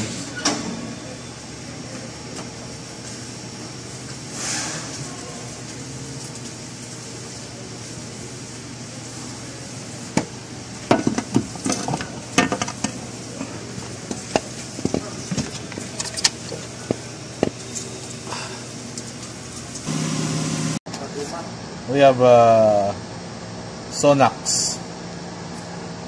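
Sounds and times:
low shop hum: 0.0 - 26.0
loud steady noise: 19.8 - 20.8.

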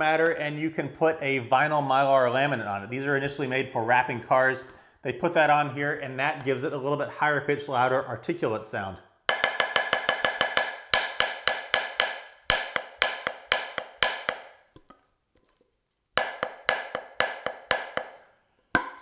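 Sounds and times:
drumstick tapping practice pad: 9.3 - 15.0, 16.2 - 19.0.

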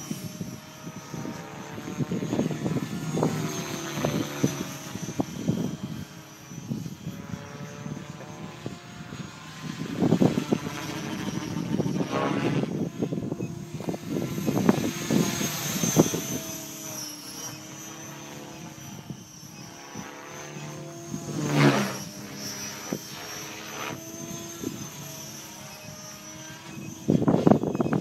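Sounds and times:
model helicopter rotor buzz: 0.0 - 28.0.

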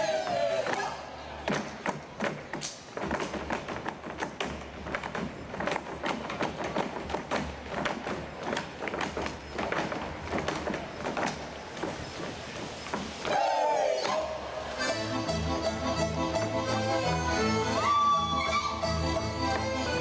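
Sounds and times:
boots stamping on stage floor: 1.5 - 13.2
folk music: 13.3 - 20.0.

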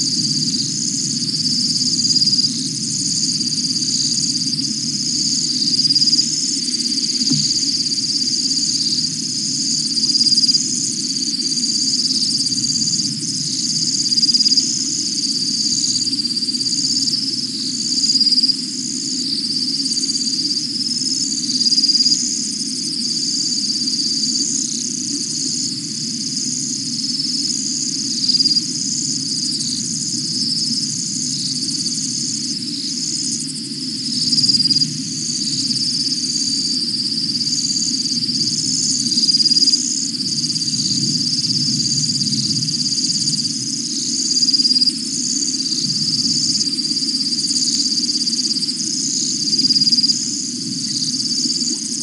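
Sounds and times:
high-pitched insect trilling: 0.0 - 52.0
low frog chorus: 0.0 - 52.0.

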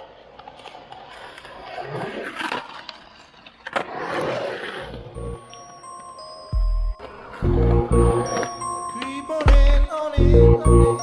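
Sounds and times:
skateboard clack: 0.0 - 6.1, 6.9 - 10.3
skateboard wheels rolling on concrete: 0.0 - 11.0
electronic music: 5.1 - 5.5, 6.6 - 8.8, 9.5 - 11.0.

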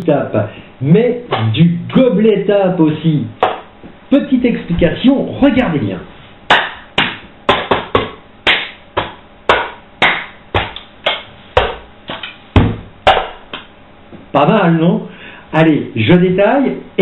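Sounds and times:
hand claps: 3.4 - 3.7, 6.5 - 13.7.

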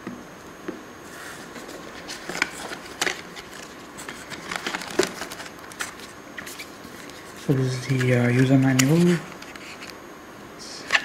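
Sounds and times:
plastic bags rustling: 1.4 - 9.8
packaging crinkling: 1.4 - 10.0.

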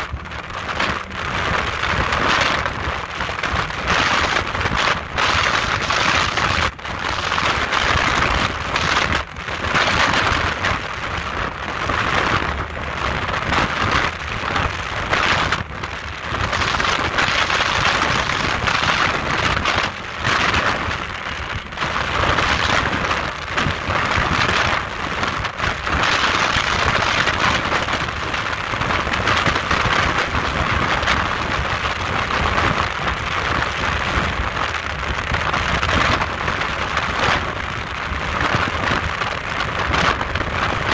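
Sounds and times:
speedboat rushing through water: 0.0 - 40.9
wind buffeting microphone: 0.0 - 40.9.

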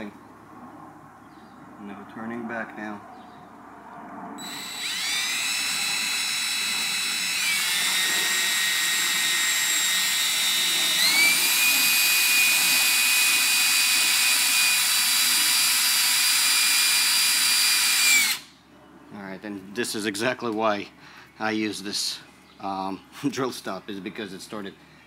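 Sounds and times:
cordless drill motor whine: 4.4 - 18.5.

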